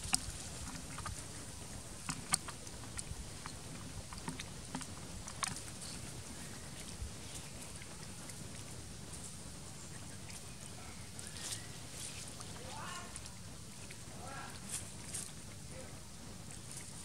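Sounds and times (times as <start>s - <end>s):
low outdoor rumble: 0.0s - 17.0s
dry leaf litter crackling: 10.4s - 13.4s.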